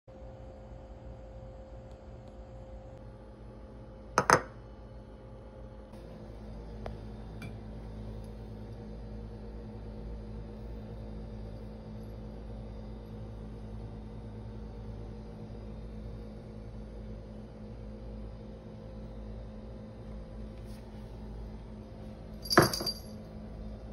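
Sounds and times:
low appliance hum: 0:00.1 - 0:23.9
ceramic dish clinking on stone: 0:22.4 - 0:23.1.

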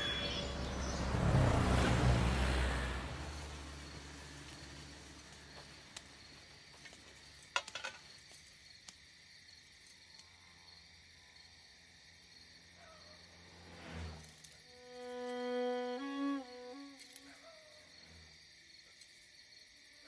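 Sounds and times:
faint high chirring: 0:14.6 - 0:18.2.

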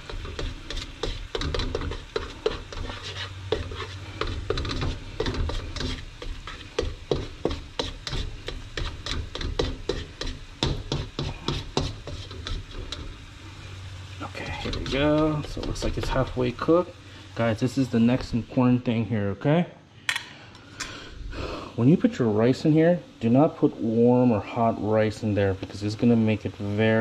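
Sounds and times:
spatula scraping a frying pan: 0:00.0 - 0:16.7
eggs sizzling in oil: 0:00.0 - 0:19.0, 0:20.4 - 0:27.0.

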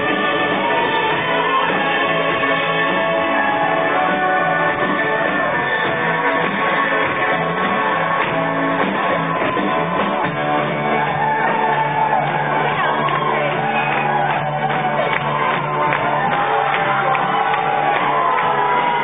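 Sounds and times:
loud music: 0:00.0 - 0:19.0
people shouting: 0:10.9 - 0:19.0.

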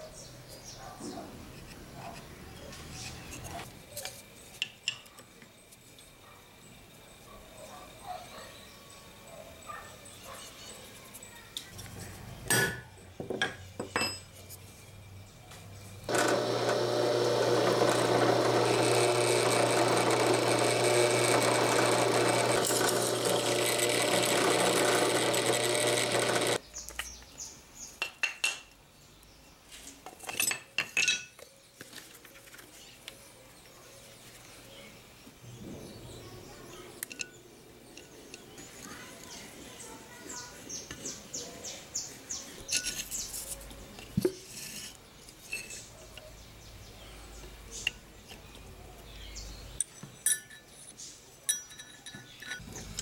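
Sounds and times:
drill press drilling wood: 0:16.1 - 0:26.6.

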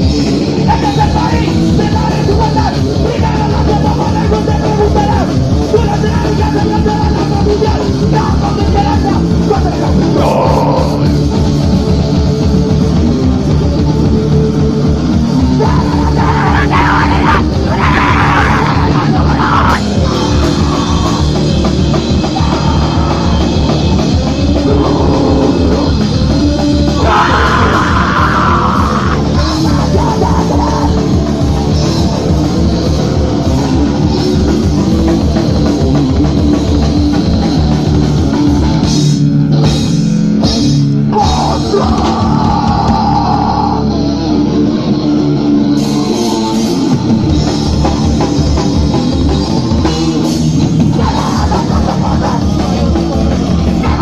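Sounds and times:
distorted electric guitar: 0:00.0 - 0:54.0
drum kit: 0:00.0 - 0:54.0.

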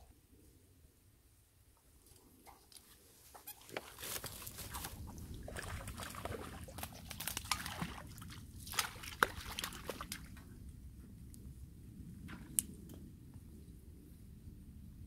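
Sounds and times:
dry reeds rustling and crackling: 0:02.0 - 0:05.6
fish splashing at water surface: 0:03.6 - 0:10.3.

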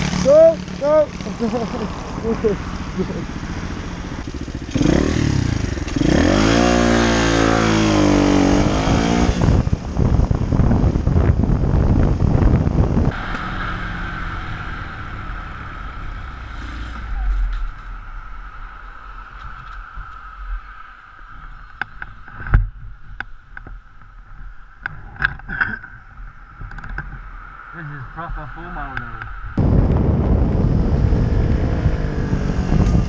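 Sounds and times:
motorcycle engine revving: 0:00.0 - 0:09.8, 0:11.8 - 0:17.6, 0:29.6 - 0:33.0
wind buffeting microphone: 0:00.9 - 0:16.0, 0:29.2 - 0:33.0.

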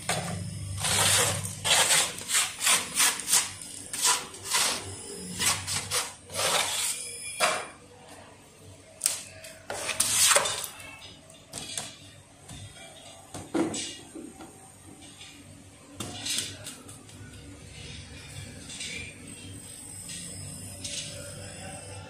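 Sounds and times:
brushing and scraping plaster: 0:00.8 - 0:07.0, 0:09.7 - 0:10.7.

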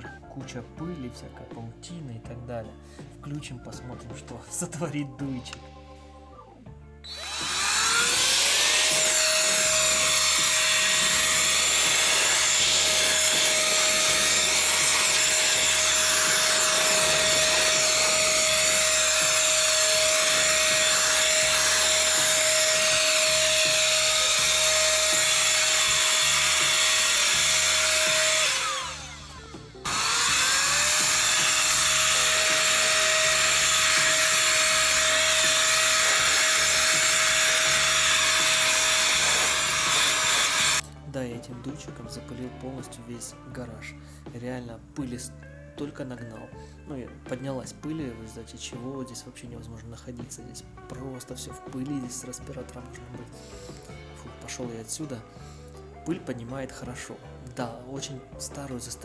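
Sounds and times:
air duster blowing with motor whine: 0:07.1 - 0:40.8.

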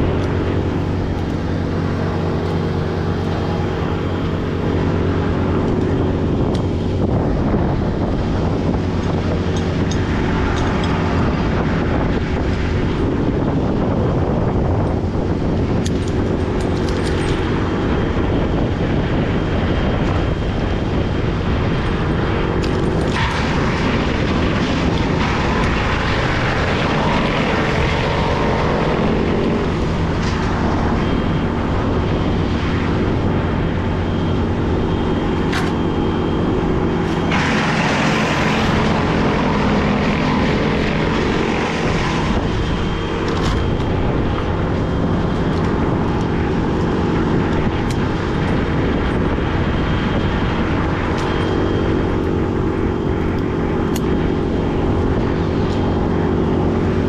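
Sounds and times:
small engine running at high revs: 0:00.0 - 0:57.0
burst of rushing noise: 0:21.1 - 0:49.3.

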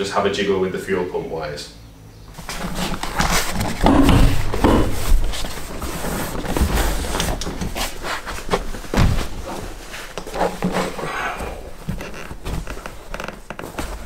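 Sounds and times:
rustling vinyl and fabric: 0:02.3 - 0:14.0.

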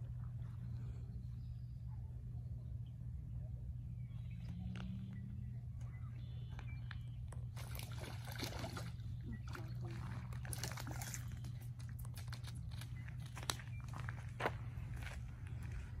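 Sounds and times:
fish splashing in shallow water: 0:07.3 - 0:13.9.

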